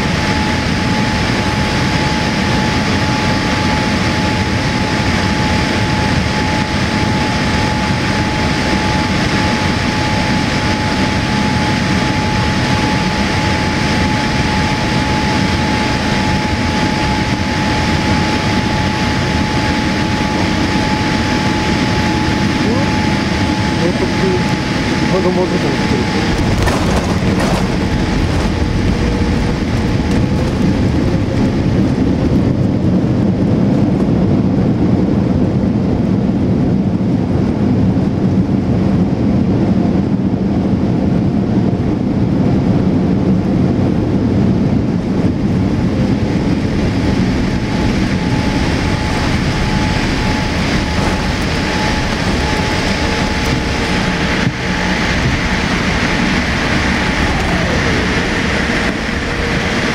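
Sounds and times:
rumble of engines and wheels: 0.0 - 59.9
aircraft touchdown jolt: 25.8 - 32.8, 46.7 - 59.9.

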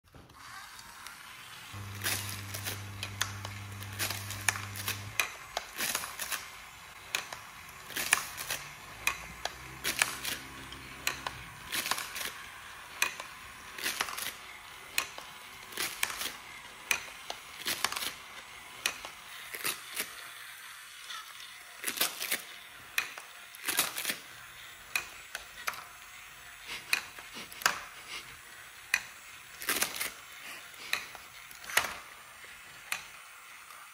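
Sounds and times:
motorized toy clicking: 0.2 - 33.9
party blower buzzing: 0.3 - 20.0.

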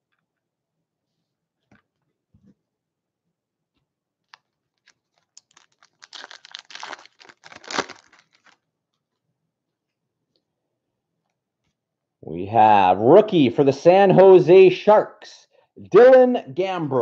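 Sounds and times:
foil wrapper crinkling and tearing: 4.3 - 8.6.

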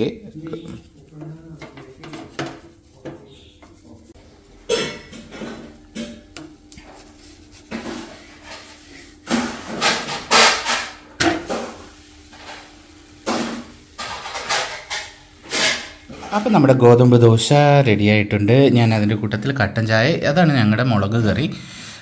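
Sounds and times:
utensils knocking and scraping on iron pan: 0.4 - 16.4.

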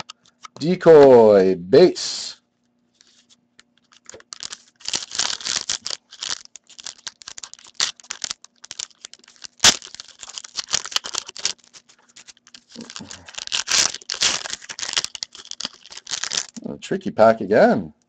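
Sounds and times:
foil wrapper tearing and crinkling: 3.8 - 16.6
wrapper sharp snap: 4.0 - 16.6.

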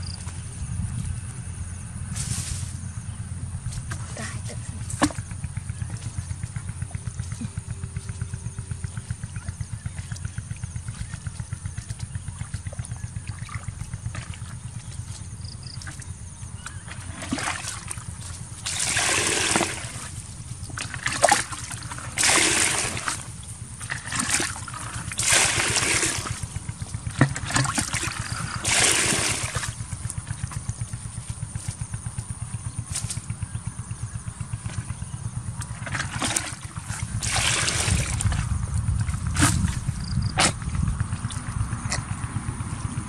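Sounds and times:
steady low rumble: 0.0 - 43.0
bucket splashing and pouring water: 9.2 - 30.6, 35.6 - 41.4.

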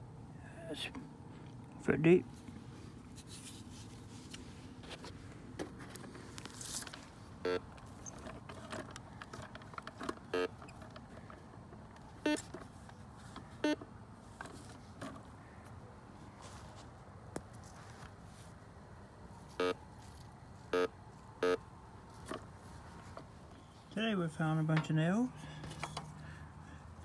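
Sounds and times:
metal detector beeps: 7.4 - 7.7, 10.3 - 10.8, 12.2 - 12.5, 13.6 - 13.8, 19.6 - 19.8, 20.7 - 21.6.

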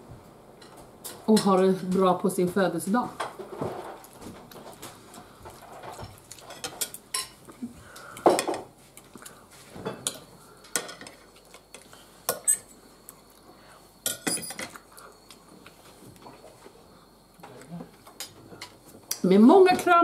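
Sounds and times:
cutlery clinking on plate: 14.1 - 14.8.

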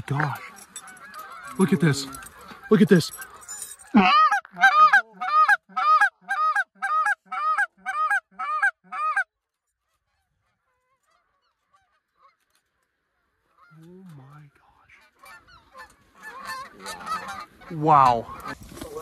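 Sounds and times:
goose honking: 4.0 - 9.3, 15.0 - 18.6.

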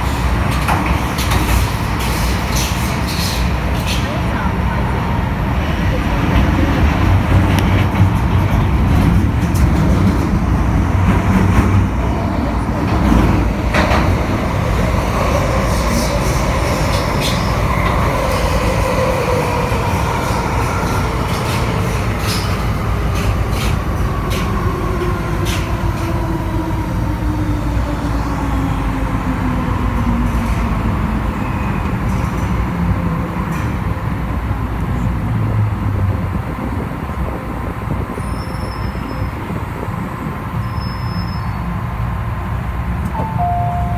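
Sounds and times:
train rumbling in tunnel: 0.0 - 43.9.

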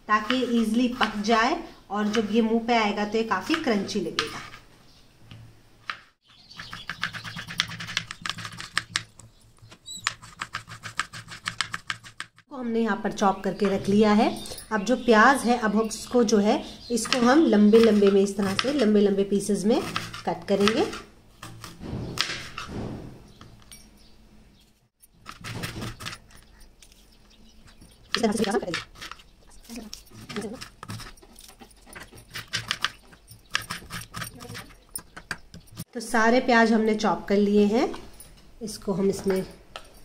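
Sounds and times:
knife slicing onion on board: 19.7 - 22.8.

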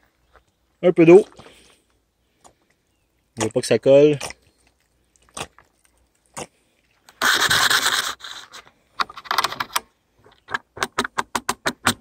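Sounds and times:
utensil scraping: 7.1 - 9.8.

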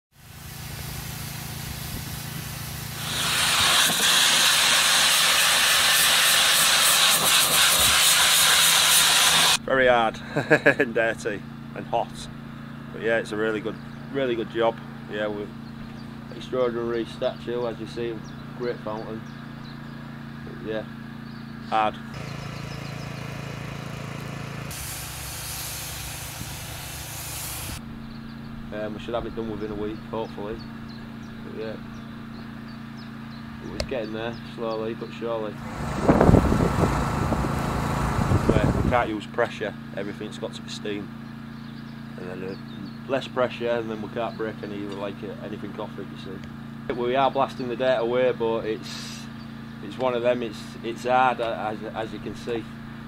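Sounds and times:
steam cleaner hissing: 0.2 - 9.6, 22.2 - 27.8, 35.6 - 39.1
steady low hum: 9.6 - 53.0
machine hum: 22.0 - 27.8, 35.5 - 39.1.

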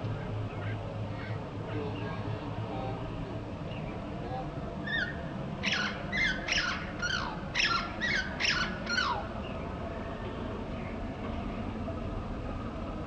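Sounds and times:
steady low rumble: 0.0 - 13.0
sparrow chirping: 4.9 - 9.6.

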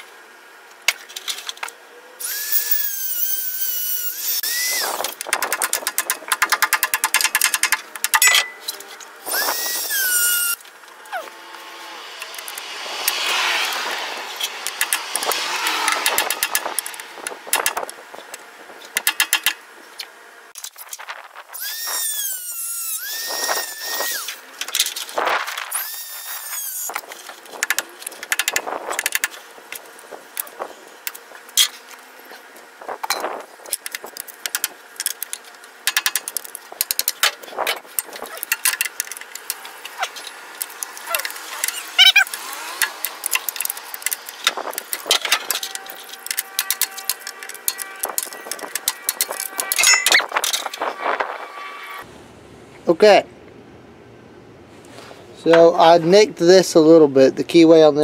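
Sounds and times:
high wavering grinder whine: 1.2 - 34.5, 35.1 - 52.1
grinder cutting metal: 2.2 - 17.9, 21.5 - 32.0, 36.0 - 52.0.

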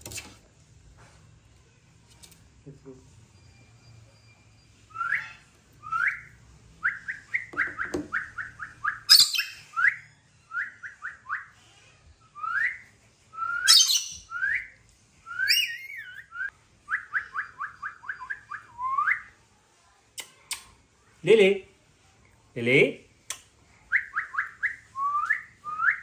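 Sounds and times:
parrot chirping: 4.2 - 11.0, 13.5 - 14.6, 15.3 - 16.4
parrot screeching: 13.7 - 14.2.

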